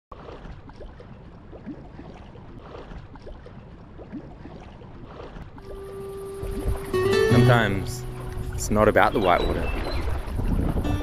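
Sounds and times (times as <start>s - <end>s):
water lapping against hull: 0.1s - 11.0s
wind rumble on microphone: 6.4s - 7.0s, 8.3s - 11.0s.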